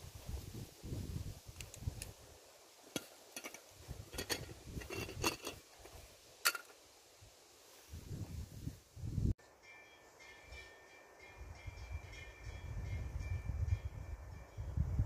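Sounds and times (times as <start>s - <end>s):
metal cookware clinking: 3.0s - 5.6s, 6.4s - 6.7s.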